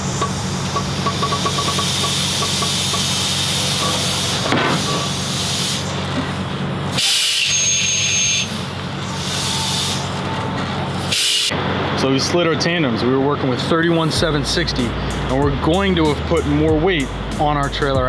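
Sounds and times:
compressed air hiss: 0.0 - 6.1, 7.0 - 10.2, 11.0 - 11.5
diesel truck engine running: 0.0 - 18.0.

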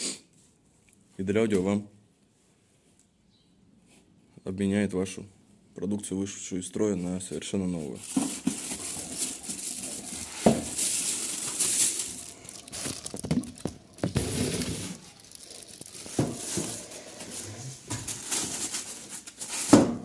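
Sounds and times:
plastic bag crinkling: 7.9 - 19.7
packing being set down knocks: 8.0 - 18.8.

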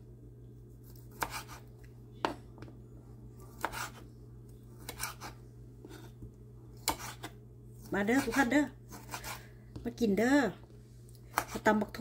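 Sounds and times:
knife cutting on wooden board: 0.9 - 1.7, 3.5 - 4.0, 4.8 - 6.2, 6.8 - 7.4, 8.2 - 9.4, 11.3 - 11.7.

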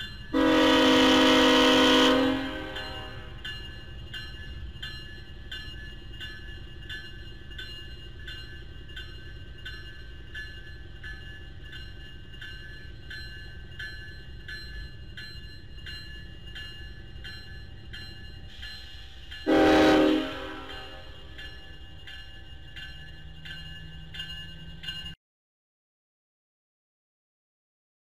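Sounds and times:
crossing bell ringing: 0.0 - 25.2
freight locomotives rumbling: 0.0 - 25.2
locomotive horn blast: 0.4 - 3.3, 19.5 - 21.0.

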